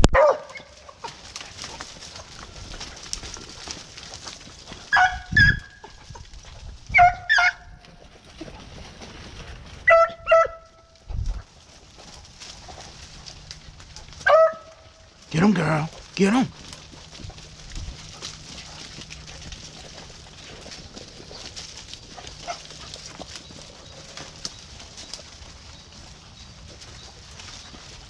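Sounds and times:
beagles yelping: 0:04.8 - 0:06.2, 0:06.9 - 0:07.8, 0:09.8 - 0:10.9, 0:12.4 - 0:28.0.

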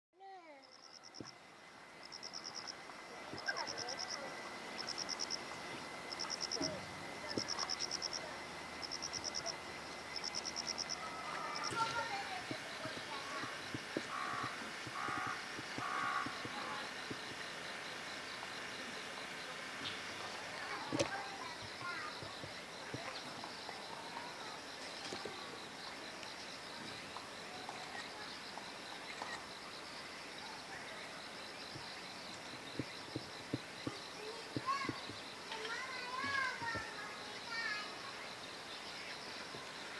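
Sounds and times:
faint high whine: 0:00.2 - 0:39.9
insect chirping: 0:00.2 - 0:39.9.

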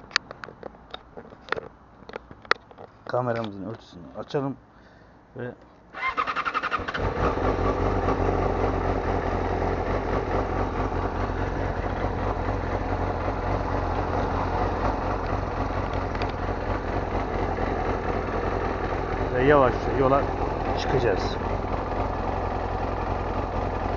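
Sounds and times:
motorcycle engine idling: 0:06.0 - 0:23.9.

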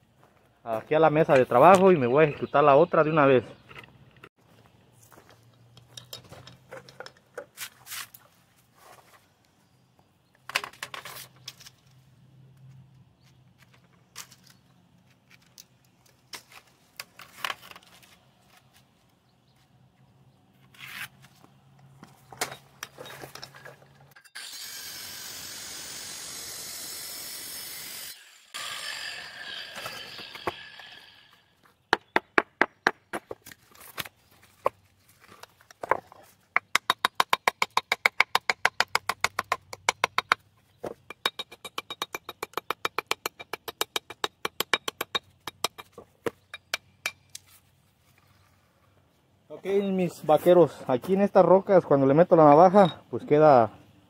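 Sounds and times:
power saw cutting stone: 0:24.1 - 0:31.6.

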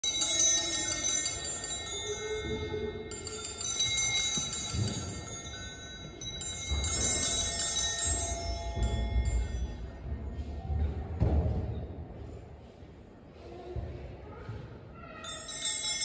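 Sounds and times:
small bells jingling: 0:00.0 - 0:10.4, 0:15.1 - 0:16.0.

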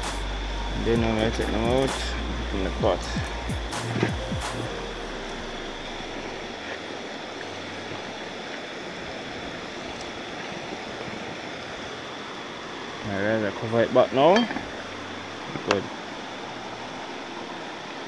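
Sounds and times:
river water rushing: 0:00.0 - 0:18.0.

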